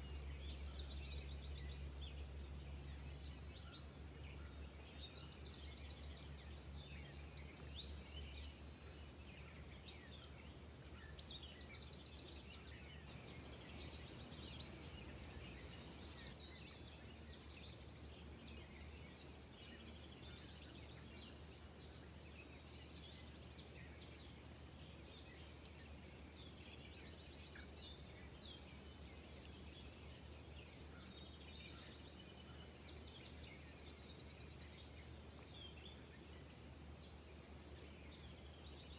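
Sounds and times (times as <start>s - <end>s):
low steady hum: 0.0s - 22.1s
small birds chirping: 0.0s - 38.9s.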